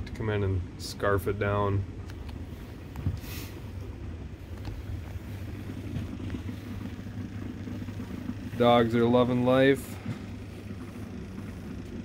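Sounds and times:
low mechanical hum of machine: 0:00.0 - 0:12.0.

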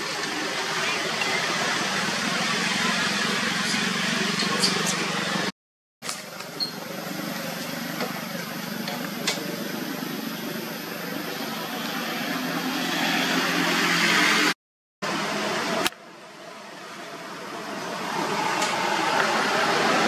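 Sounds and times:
motor engine running: 0:00.0 - 0:05.5.

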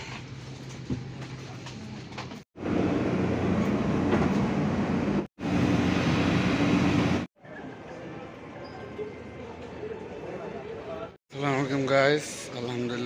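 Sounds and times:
jet roar and ramp noise: 0:02.6 - 0:07.3.

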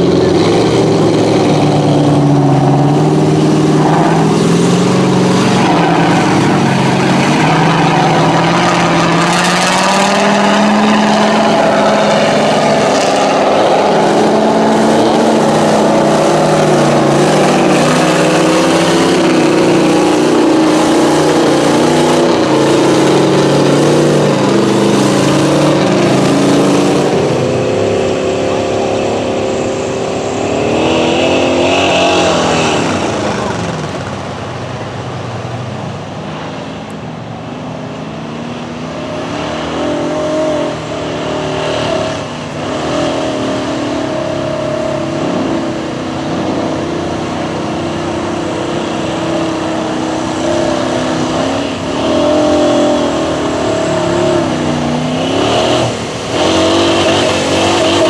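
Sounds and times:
truck engine revving: 0:00.0 - 0:58.0.

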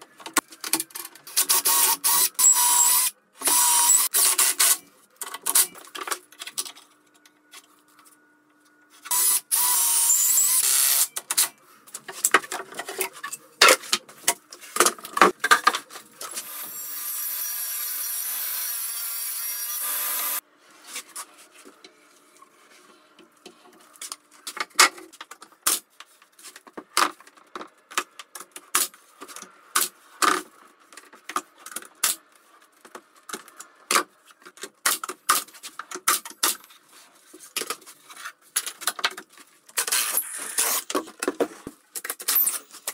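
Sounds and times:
table saw cutting: 0:16.3 - 0:20.4.

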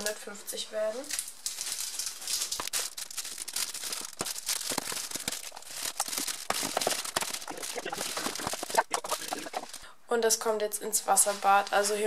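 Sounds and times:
wrapper crinkling: 0:00.8 - 0:09.9, 0:11.1 - 0:12.0
chocolate snapping: 0:01.1 - 0:08.7.

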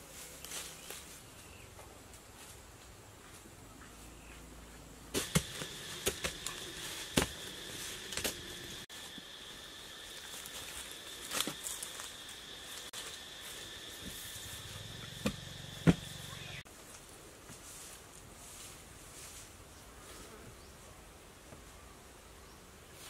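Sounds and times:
hands digging in leaves and soil: 0:00.0 - 0:01.6, 0:05.2 - 0:15.2
high-pitched insect buzz: 0:05.2 - 0:16.7.

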